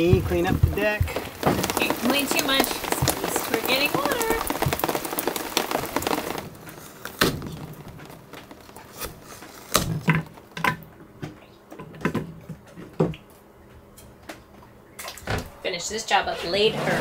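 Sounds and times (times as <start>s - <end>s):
rain hiss: 0.0s - 10.5s.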